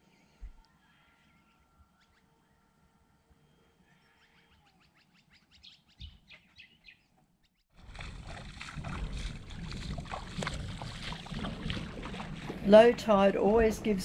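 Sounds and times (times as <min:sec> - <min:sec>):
bird chirps: 0:00.6 - 0:02.7, 0:03.8 - 0:07.6
shallow water lapping: 0:07.7 - 0:14.0.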